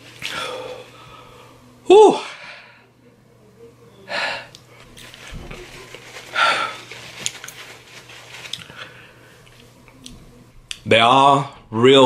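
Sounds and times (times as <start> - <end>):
man breathing hard: 6.3 - 7.0.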